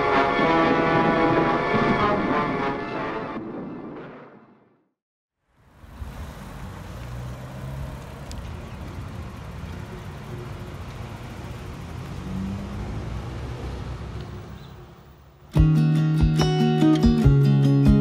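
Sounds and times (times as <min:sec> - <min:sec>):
car road and engine rumble: 0:05.4 - 0:15.6.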